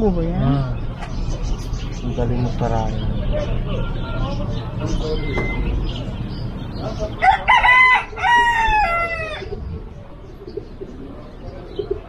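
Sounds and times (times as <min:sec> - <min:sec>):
rooster crowing: 0:07.2 - 0:09.5.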